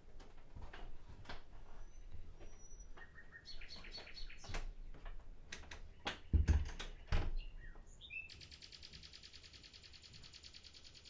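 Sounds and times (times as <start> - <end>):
nightingale singing: 1.8 - 4.6, 5.8 - 11.0.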